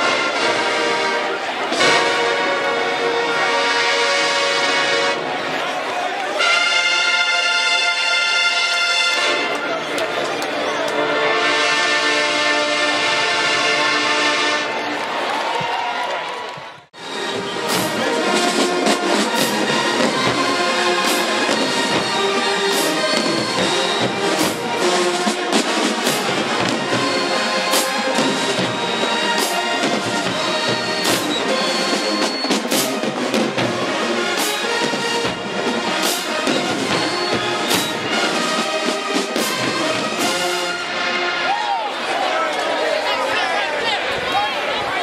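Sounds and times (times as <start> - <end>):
marching band playing: 0.0 - 15.4, 17.0 - 43.6
cymbal and drum hits: 17.6 - 18.2, 21.0 - 24.9, 34.4 - 38.2.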